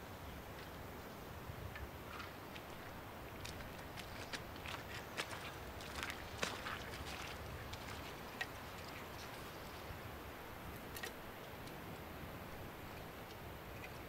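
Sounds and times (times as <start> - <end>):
low hiss and rumble: 0.0 - 14.0.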